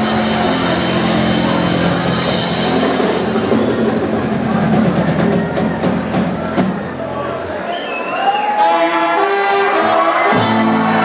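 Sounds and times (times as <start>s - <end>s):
drum kit beat: 0.0s - 7.1s, 8.8s - 11.0s
live ska band playing: 0.0s - 7.1s, 8.5s - 11.0s.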